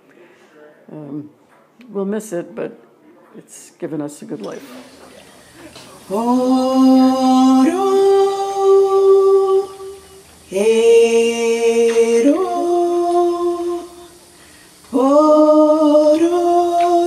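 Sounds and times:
woman singing wordless notes: 6.0s - 14.2s, 14.9s - 17.0s.

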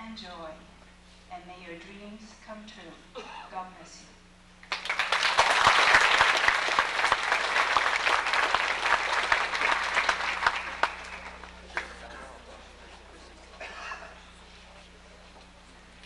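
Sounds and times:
audience applauding: 4.6s - 12.3s.

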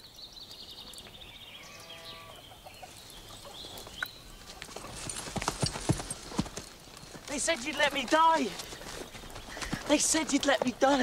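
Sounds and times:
chickens clucking and cackling: 2.2s - 5.0s
horse hooves clattering: 3.4s - 11.0s.

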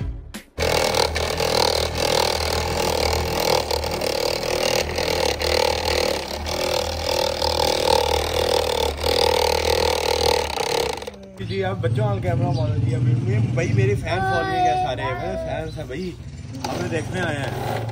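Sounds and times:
electric polisher motor whine: 0.6s - 11.2s.

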